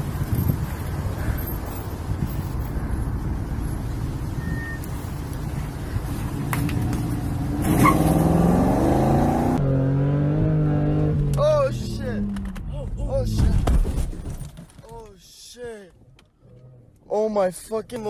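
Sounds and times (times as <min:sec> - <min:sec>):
wind on microphone: 0:00.0 - 0:01.4
street traffic: 0:00.0 - 0:18.0
car engine revving: 0:06.6 - 0:12.6.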